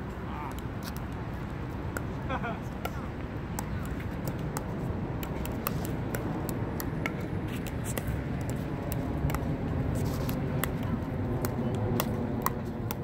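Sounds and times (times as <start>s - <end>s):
paddles tapping plastic ball: 2.8s - 13.0s
ball bouncing on hard court: 3.6s - 9.5s, 11.4s - 13.0s.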